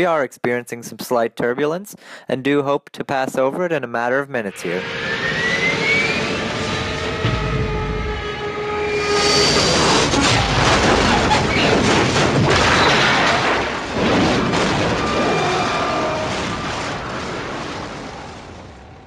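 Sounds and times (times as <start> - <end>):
crash and explosion: 8.9 - 19.0.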